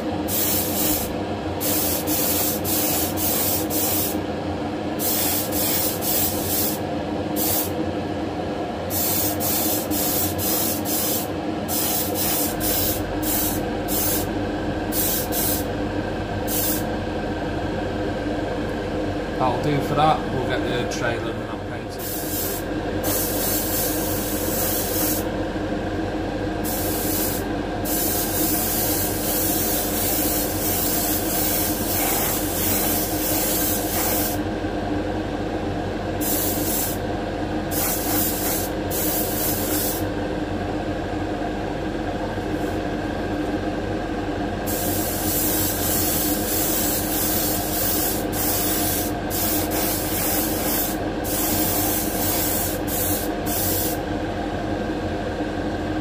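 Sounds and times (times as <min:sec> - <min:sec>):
steady machine hum: 0:00.0 - 0:56.0
airbrush spraying hiss: 0:00.3 - 0:04.2, 0:05.0 - 0:06.8, 0:07.4 - 0:07.7, 0:08.9 - 0:14.3, 0:14.9 - 0:15.7, 0:16.5 - 0:16.8, 0:22.0 - 0:25.3, 0:26.6 - 0:34.4, 0:36.2 - 0:37.0, 0:37.7 - 0:40.0, 0:44.7 - 0:54.0.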